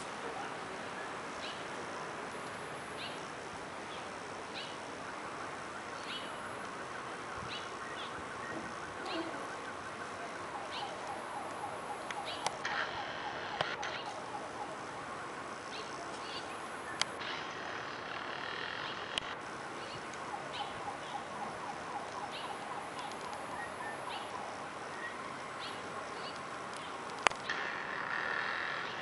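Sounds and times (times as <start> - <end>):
outdoor background noise: 0.0 - 29.0
sharp clicks: 11.0 - 14.1, 17.0 - 19.4, 22.9 - 23.5, 26.3 - 28.9.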